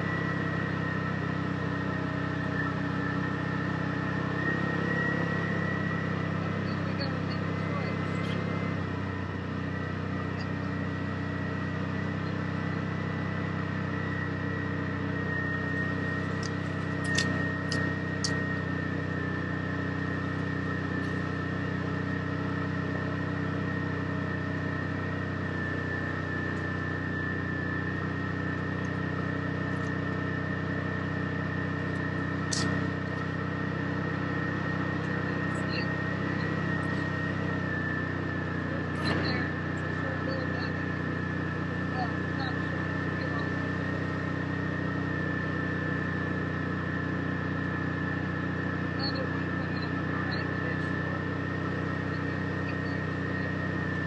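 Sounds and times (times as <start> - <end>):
thin steady whine: 0.0 - 54.0
utv engine running: 0.0 - 54.0
sharp clicks: 16.4 - 18.4, 32.5 - 32.8.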